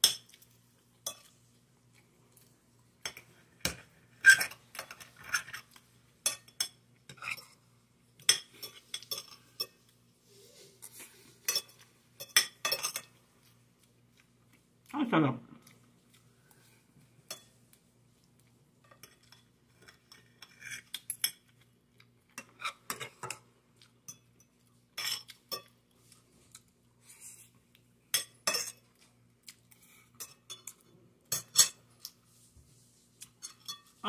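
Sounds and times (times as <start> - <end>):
cutlery clinking on glass plate: 11.4 - 13.2, 33.4 - 34.0.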